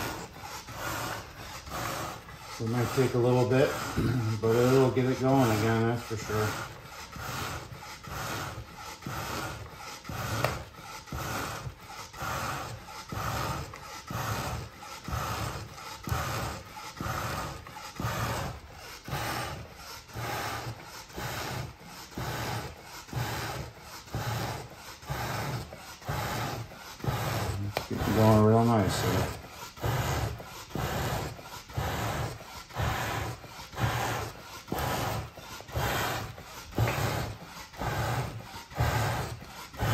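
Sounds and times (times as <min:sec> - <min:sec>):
hand bellows puffing air: 0:00.0 - 0:39.9.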